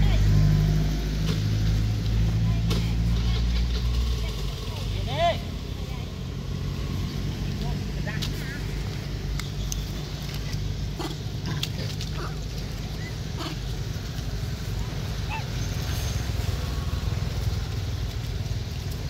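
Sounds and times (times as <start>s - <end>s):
monkey calls: 9.6s - 14.0s, 14.9s - 16.4s.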